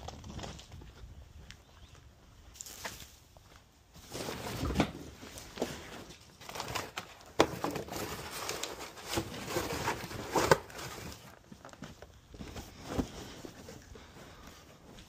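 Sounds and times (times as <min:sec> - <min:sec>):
cardboard rustling and scraping: 0:04.0 - 0:14.9.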